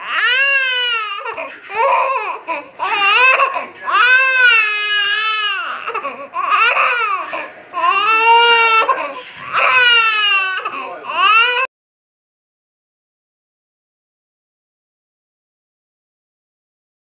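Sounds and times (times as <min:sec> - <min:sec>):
baby crying: 0:00.0 - 0:11.7.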